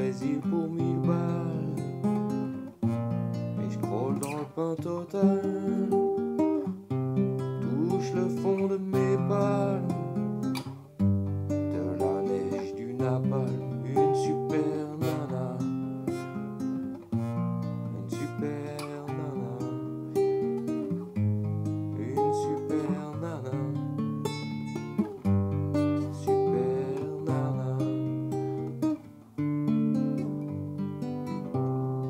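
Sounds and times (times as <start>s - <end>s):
classical guitar playing: 0.0s - 32.0s.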